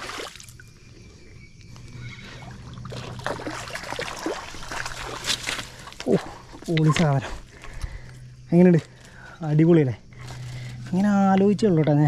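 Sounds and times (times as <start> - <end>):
fish thrashing and splashing: 2.6 - 6.5.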